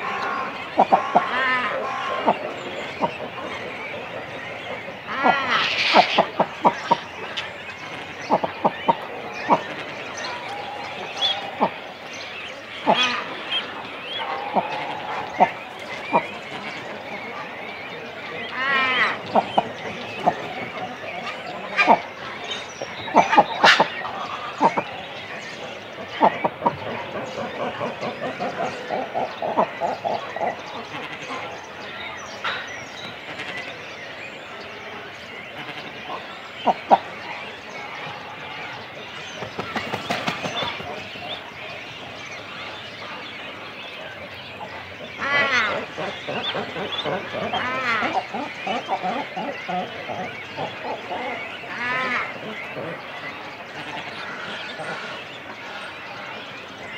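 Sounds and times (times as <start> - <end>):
higher bird chirping: 0.0 - 31.6
cormorant calls: 0.0 - 56.9
murmur of bird colony: 0.0 - 56.9.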